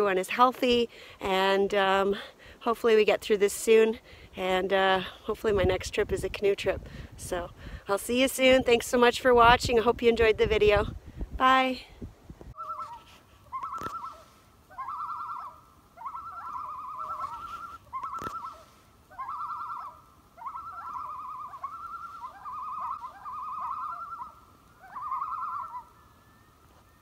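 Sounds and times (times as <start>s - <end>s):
bird call quavering: 12.6s - 27.0s.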